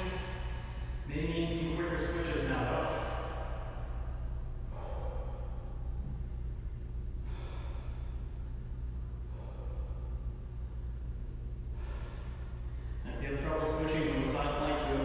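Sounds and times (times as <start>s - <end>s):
steady low hum: 0.0s - 15.0s
man breathing under strain: 2.8s - 6.5s, 7.1s - 11.0s, 11.6s - 13.1s.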